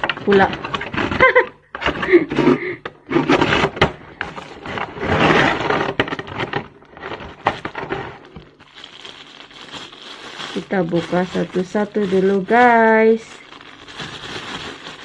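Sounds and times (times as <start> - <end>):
plastic scraping on table: 0.0 - 8.4
plastic wrapping rustling: 4.2 - 15.0.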